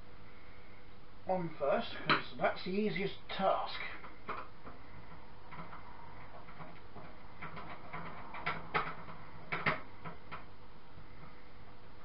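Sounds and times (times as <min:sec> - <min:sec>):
small parts clicking and tapping: 0:03.9 - 0:10.5.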